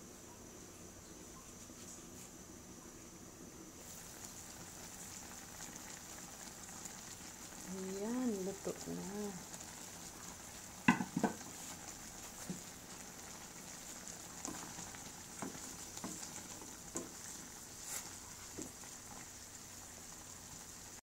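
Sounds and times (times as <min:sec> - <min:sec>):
sauce sizzling and bubbling in pan: 0:03.8 - 0:21.0
wooden spatula stirring pan: 0:13.3 - 0:19.3.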